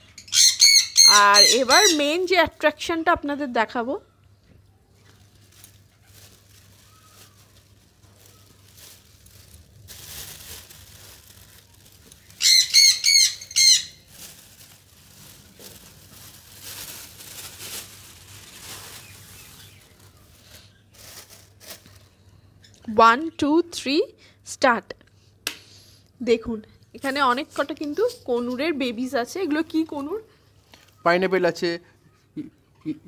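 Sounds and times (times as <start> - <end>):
parrot squawking harshly: 0.2 - 2.0, 12.4 - 14.0.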